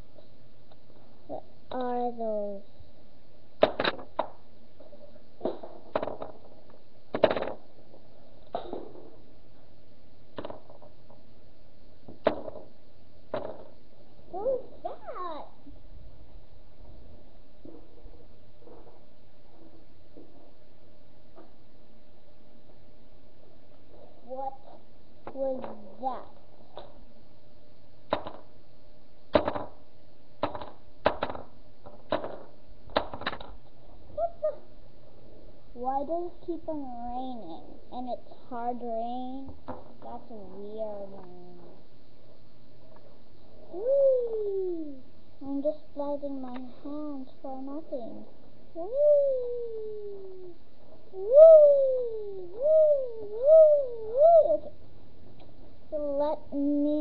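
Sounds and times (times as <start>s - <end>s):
sharp taps and knocks: 10.4s - 11.2s, 28.1s - 28.5s, 29.3s - 29.8s, 30.4s - 33.6s.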